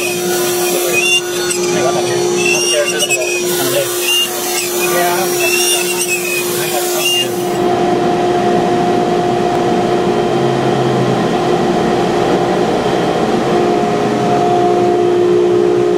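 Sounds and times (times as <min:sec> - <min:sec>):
dust extraction rushing: 0:00.0 - 0:07.6
router spindle whine: 0:00.0 - 0:10.8.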